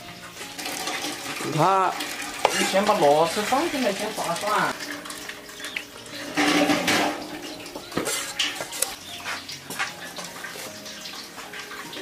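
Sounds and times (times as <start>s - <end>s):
water sloshing in a basin: 0.3s - 12.0s
snail shells clattering and scraping: 0.4s - 7.4s.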